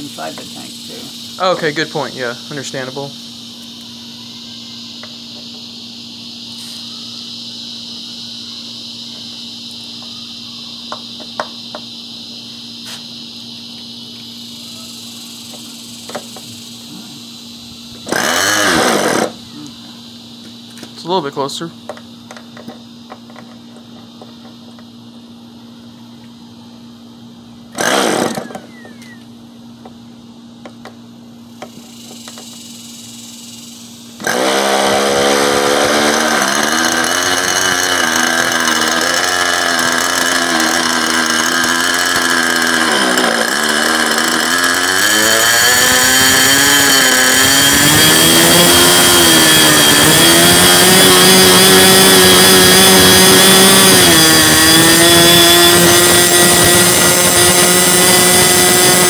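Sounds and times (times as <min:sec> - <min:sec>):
glow engine running with high buzz: 0:00.0 - 0:59.0
engine cranking: 0:18.0 - 0:19.4, 0:27.7 - 0:29.2, 0:34.2 - 0:59.0.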